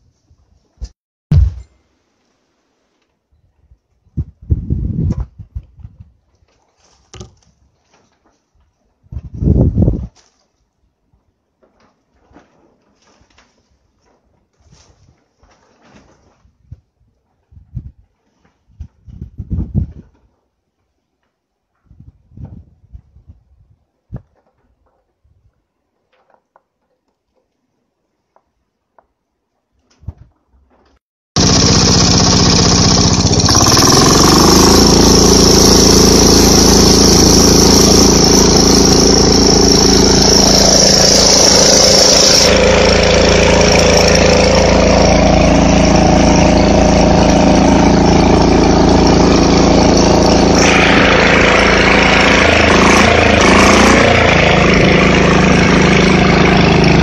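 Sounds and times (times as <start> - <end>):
diesel engine running: 31.4 - 57.0.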